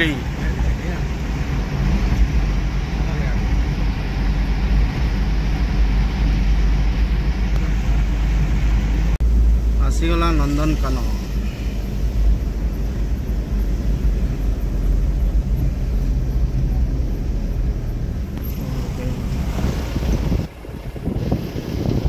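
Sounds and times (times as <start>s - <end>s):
car engine and tyre rumble: 0.0s - 22.0s.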